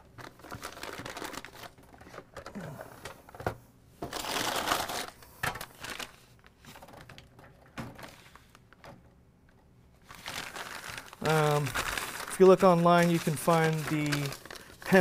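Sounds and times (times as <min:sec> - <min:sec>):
plastic bag and paper crinkling: 0:00.0 - 0:02.5, 0:04.1 - 0:07.3, 0:10.0 - 0:15.0.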